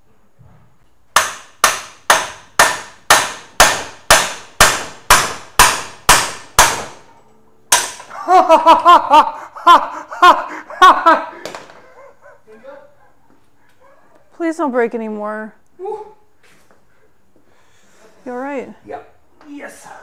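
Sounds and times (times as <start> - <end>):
hammer striking steel bar: 1.2 - 7.1, 7.7 - 8.1.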